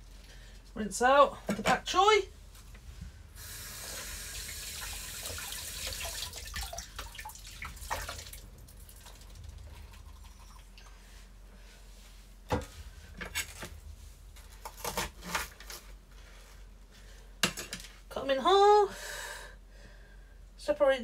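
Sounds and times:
water dripping and splashing: 4.4 - 10.8.

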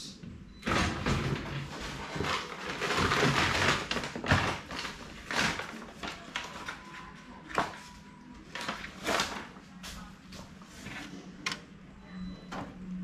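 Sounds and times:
paper rustling: 1.6 - 11.3.

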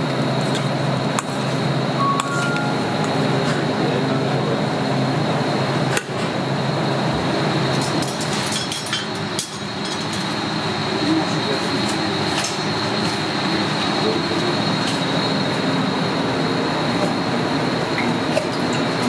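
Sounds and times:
thin high whine: 1.9 - 4.8
kitchen background noise: 7.6 - 15.7.

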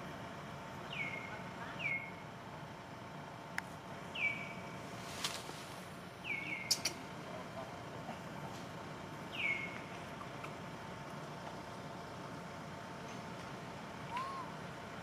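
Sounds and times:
faint steady hum: 0.0 - 15.0
sharp clicks: 6.7 - 7.0
high-pitched animal calls: 14.1 - 14.6.

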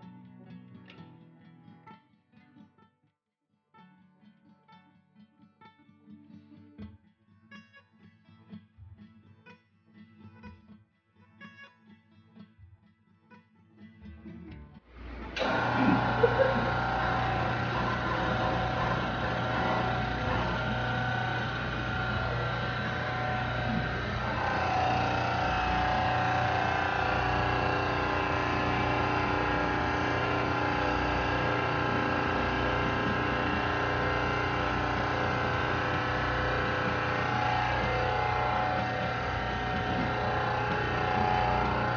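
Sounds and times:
hydraulic pump humming: 14.9 - 41.9.

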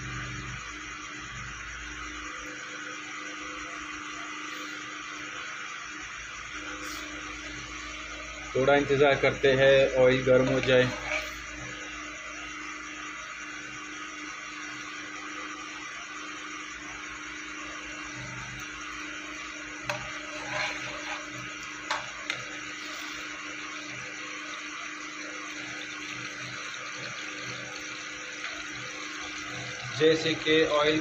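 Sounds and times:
oil hissing in pan: 6.7 - 12.0, 17.2 - 31.0.

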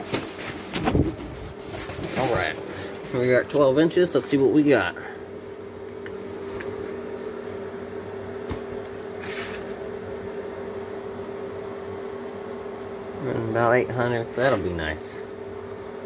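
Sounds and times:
machine hum: 0.0 - 16.0.

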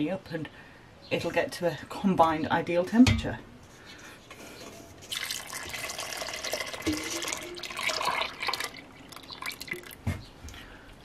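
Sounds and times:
water pouring into a pot: 5.1 - 10.0.

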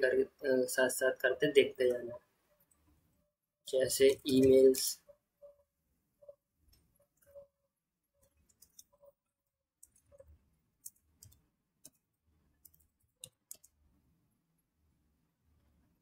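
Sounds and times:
computer keyboard keystrokes: 10.8 - 12.0, 12.6 - 13.8.

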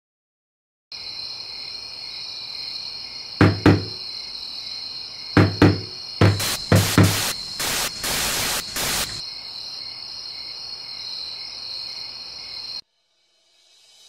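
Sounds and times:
crickets chirping: 0.9 - 14.0
hand knocking on wooden cabinet: 3.4 - 4.0, 5.4 - 7.2.

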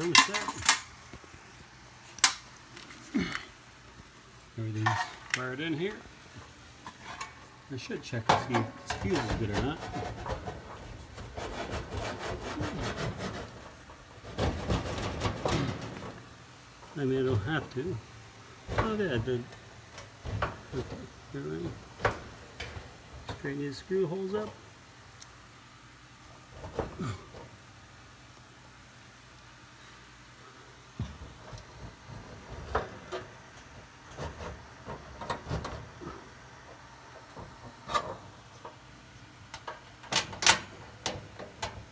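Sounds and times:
sheet metal clanks and knocks: 8.2 - 10.9, 14.2 - 16.2
hands scraping sheet metal: 8.4 - 16.2, 34.0 - 36.3.

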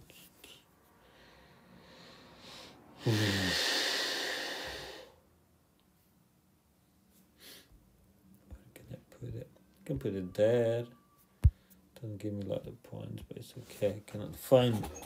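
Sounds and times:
man sighing: 3.0 - 5.1.

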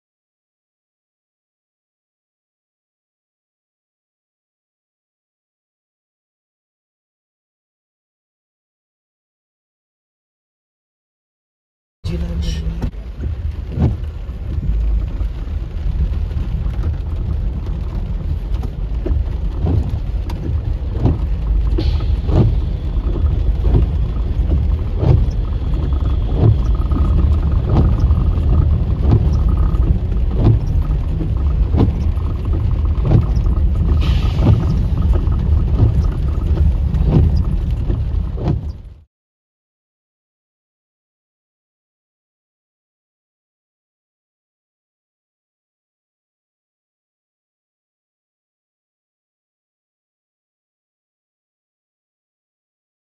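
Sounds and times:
rain on windshield: 12.0 - 39.1.

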